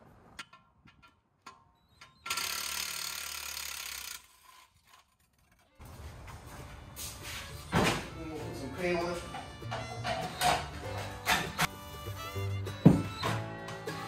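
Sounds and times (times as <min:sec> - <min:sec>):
ratchet wrench clicking: 0:01.5 - 0:05.6.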